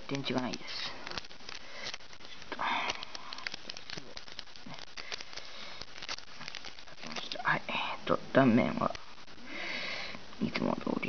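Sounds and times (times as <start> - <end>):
plastic wrapper crinkling: 0.0 - 8.0.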